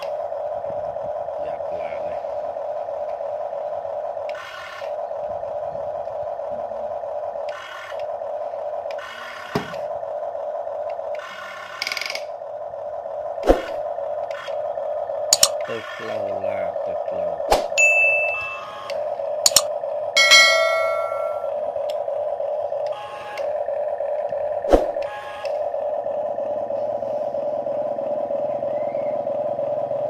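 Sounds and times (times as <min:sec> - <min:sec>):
toy excavator motor whirring: 0:04.2 - 0:05.2, 0:07.4 - 0:10.0, 0:10.8 - 0:12.6, 0:13.4 - 0:16.4, 0:18.6 - 0:19.7, 0:22.8 - 0:24.4, 0:25.0 - 0:26.0.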